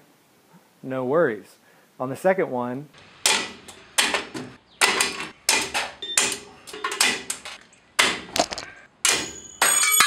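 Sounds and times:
sharp metallic clanks: 3.2 - 10.0.

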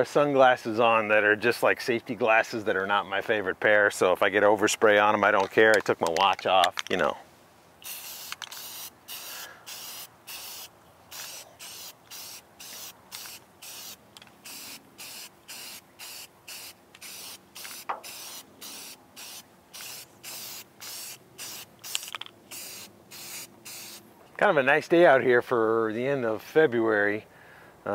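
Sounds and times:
spray can hissing in bursts: 7.8 - 24.0.

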